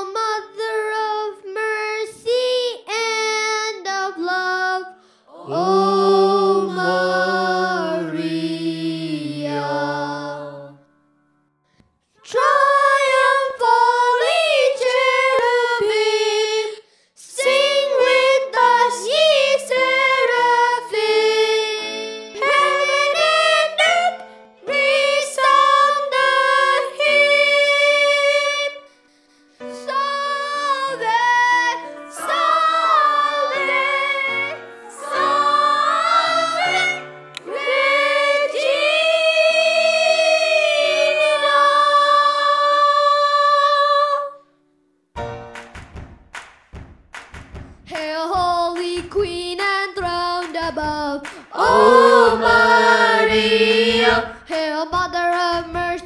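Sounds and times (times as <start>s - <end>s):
woman and boys singing a hymn: 4.2s - 10.8s, 51.3s - 56.0s.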